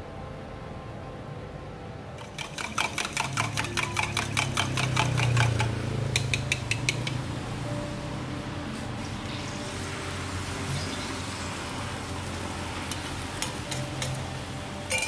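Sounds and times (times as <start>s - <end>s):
fork beating eggs in metal cup: 2.2s - 7.2s.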